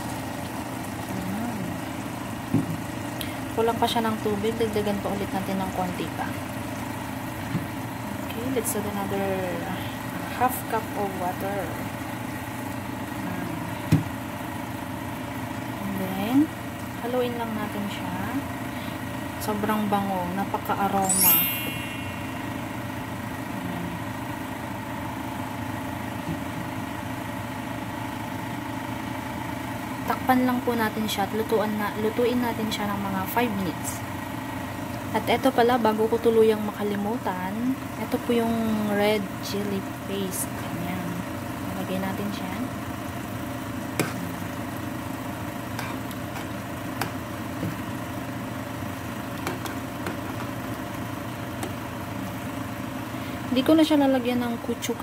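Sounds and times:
mechanical hum: 0.0 - 55.0.

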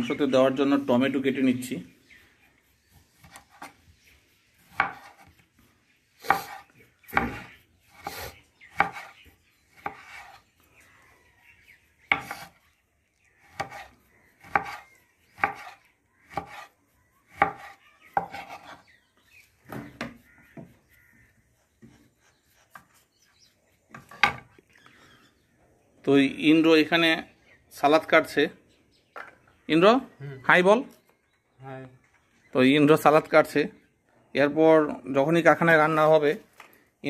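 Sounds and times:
knife chopping on wooden board: 4.6 - 5.4, 6.2 - 9.2, 9.8 - 10.4, 12.1 - 12.6, 13.4 - 16.7, 17.3 - 18.8, 19.6 - 20.9.

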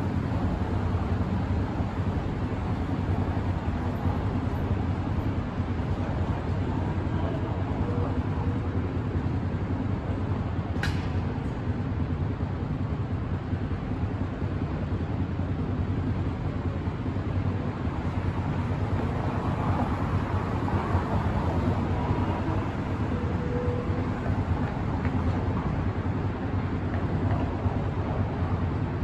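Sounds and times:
street traffic rumble: 0.0 - 29.0
sharp click: 10.8 - 11.2.

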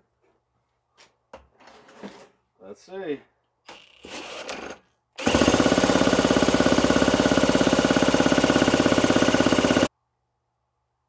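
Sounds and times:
power tool spinning starter: 3.7 - 9.9
chainsaw engine droning: 5.2 - 9.9.

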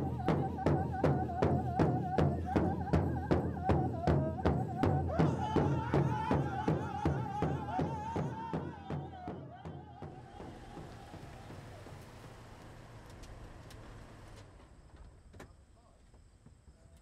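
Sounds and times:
large drum steady beat: 0.0 - 12.0.

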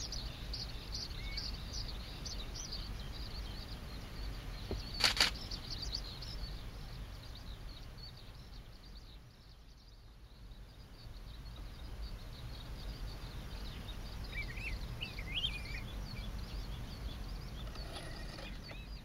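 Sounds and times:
faint high bird chirps: 0.0 - 19.0
low steady rumble: 0.0 - 19.0.

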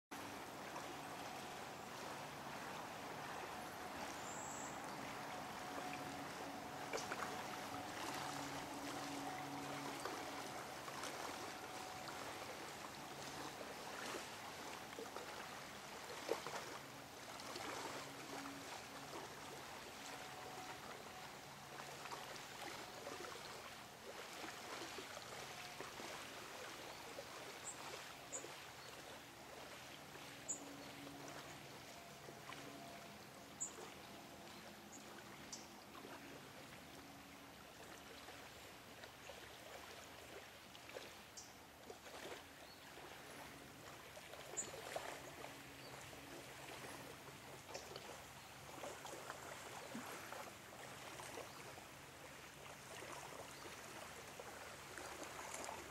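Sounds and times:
lake waves lapping on shore: 0.1 - 55.9.

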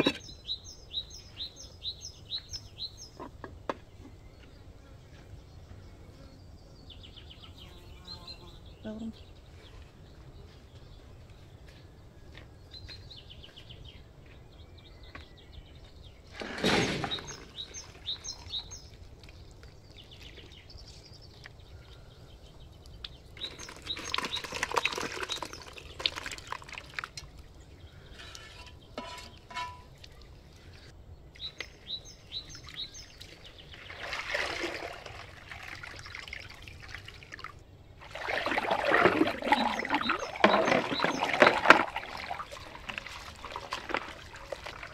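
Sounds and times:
small birds chirping: 0.0 - 35.1, 35.8 - 44.9
water running from a hose: 38.0 - 44.9.

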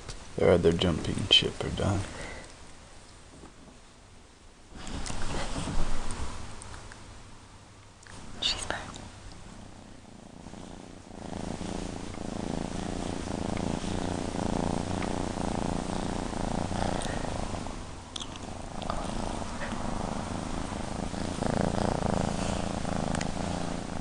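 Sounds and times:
kitten purring: 4.7 - 6.3, 8.1 - 24.0.

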